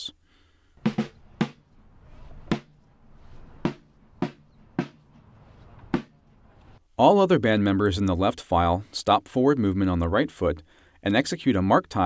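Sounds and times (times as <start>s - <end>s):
marching drum strokes: 0.8s - 6.8s.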